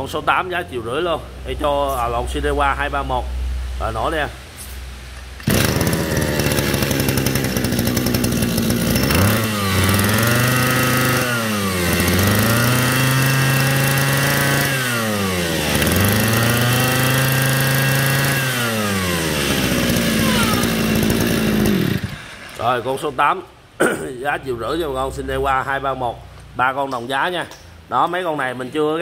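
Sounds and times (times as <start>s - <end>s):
brush cutter engine revving: 5.4s - 22.6s.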